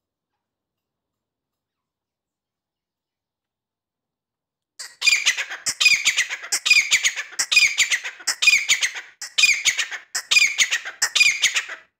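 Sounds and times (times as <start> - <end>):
bird squawking harshly: 4.8 - 11.9.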